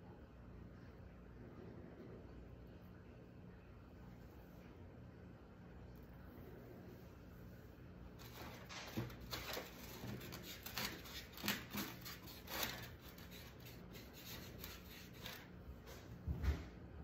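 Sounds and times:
scratchy rubbing on wood: 0:08.2 - 0:15.5.

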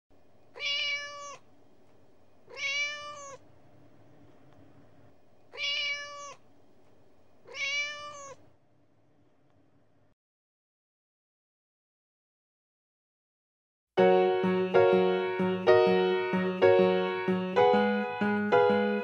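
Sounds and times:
faint steady hiss: 0:00.2 - 0:10.2
cat meowing: 0:00.6 - 0:01.5, 0:02.5 - 0:03.4, 0:05.5 - 0:06.4, 0:07.4 - 0:08.5.

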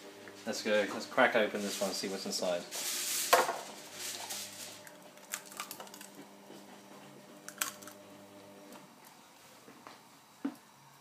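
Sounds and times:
eggshell crackling: 0:04.8 - 0:06.2.

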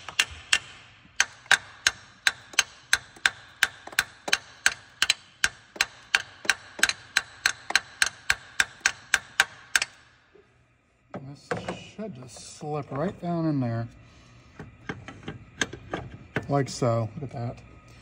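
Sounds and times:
hammer tapping metal: 0:00.0 - 0:10.1.

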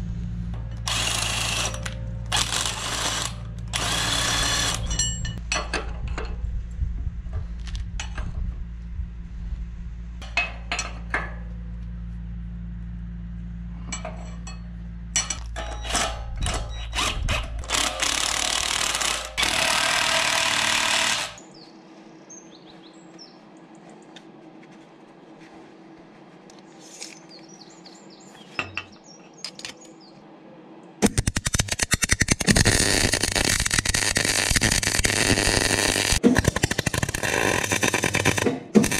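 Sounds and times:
steady low hum: 0:00.0 - 0:38.9
rough power tool noise: 0:00.8 - 0:04.9, 0:17.0 - 0:21.4, 0:31.6 - 0:38.9
ratchet and spanner clicks: 0:00.8 - 0:05.0, 0:31.0 - 0:38.9
welder crackling: 0:00.8 - 0:05.0, 0:17.0 - 0:21.4, 0:31.0 - 0:38.9.

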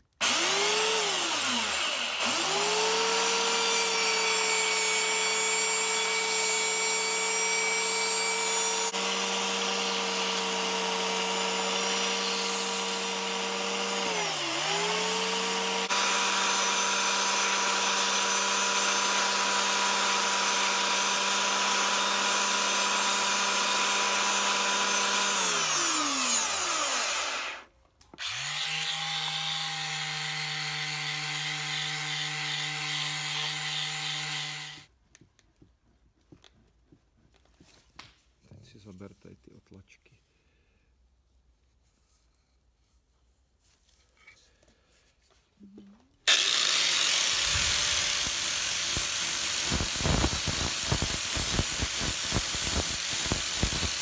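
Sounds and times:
belt sander grinding wood: 0:00.2 - 0:34.9, 0:46.3 - 0:54.0
small power-tool motor humming: 0:00.2 - 0:34.9, 0:46.3 - 0:54.0.

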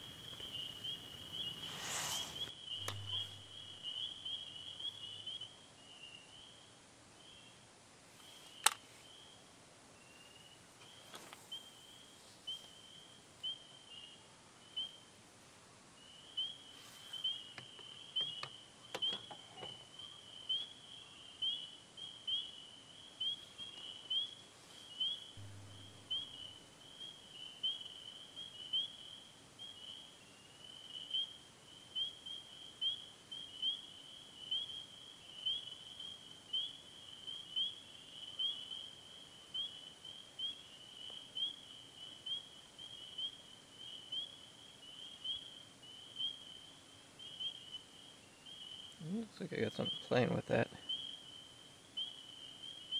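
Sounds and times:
faint clicks: 0:08.2 - 0:08.9.

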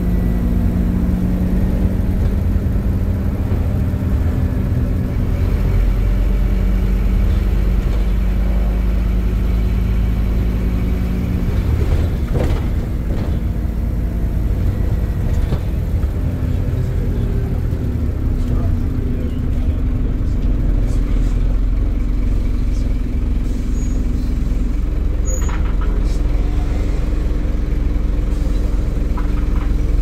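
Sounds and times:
bus engine rumbling: 0:00.0 - 0:30.0.

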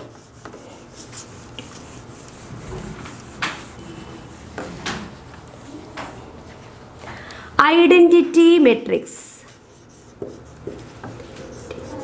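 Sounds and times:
whiteboard being wiped: 0:00.0 - 0:06.9, 0:09.4 - 0:12.0.

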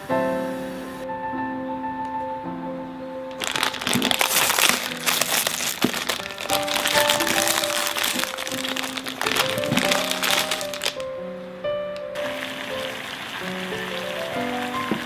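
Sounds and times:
background music: 0:00.0 - 0:15.0
plastic packet crinkling: 0:03.3 - 0:11.1.

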